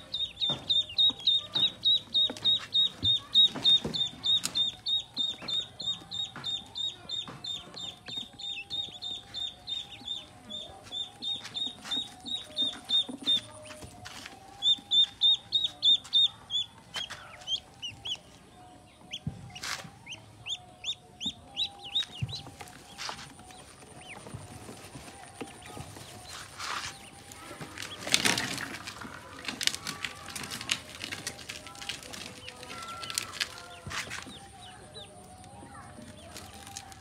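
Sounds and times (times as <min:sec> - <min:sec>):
ducklings peeping: 0:00.0 - 0:37.0.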